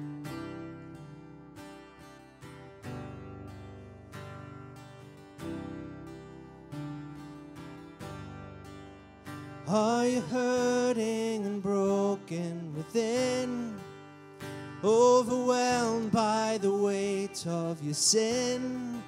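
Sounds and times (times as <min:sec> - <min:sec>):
acoustic guitar: 0:00.0 - 0:19.0
person singing: 0:09.7 - 0:14.0, 0:14.8 - 0:19.0.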